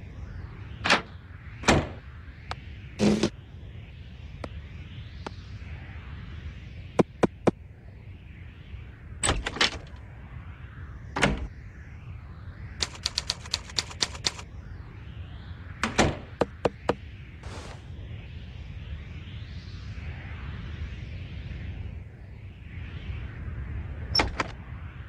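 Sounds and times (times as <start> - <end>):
cartoon clicks and knocks: 12.8 - 14.4.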